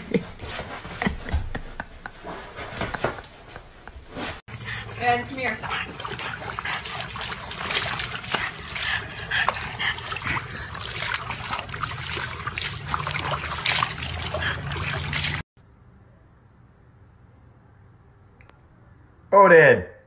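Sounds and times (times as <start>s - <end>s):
water splashing and trickling: 4.5s - 15.5s.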